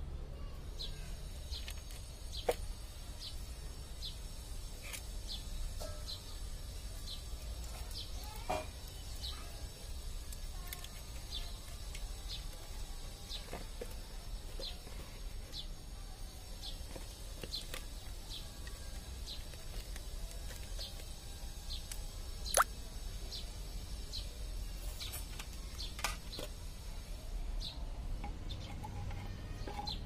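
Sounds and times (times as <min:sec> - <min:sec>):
small birds chirping: 0:00.2 - 0:27.0, 0:27.6 - 0:30.0.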